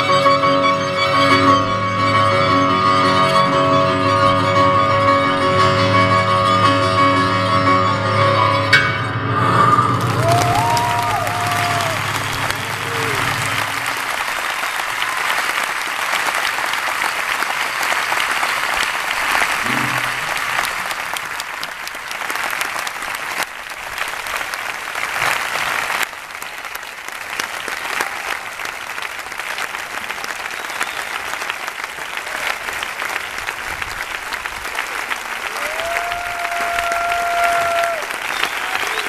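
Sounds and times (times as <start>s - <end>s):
audience applauding: 9.7s - 39.0s.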